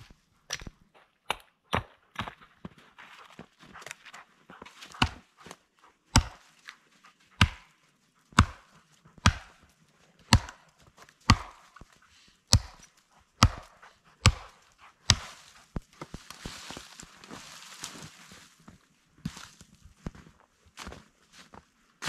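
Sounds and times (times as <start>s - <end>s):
axe chopping wood: 1.3s - 2.4s, 4.8s - 5.3s, 6.1s - 6.4s, 7.4s - 7.7s, 8.3s - 10.6s, 11.2s - 11.9s, 12.5s - 16.6s.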